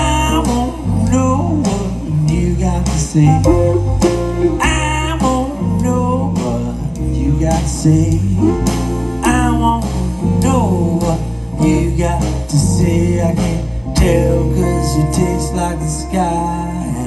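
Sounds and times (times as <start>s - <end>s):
bass: 0.0s - 17.0s
drums: 0.0s - 17.0s
electric guitar lead with bending notes: 0.0s - 17.0s.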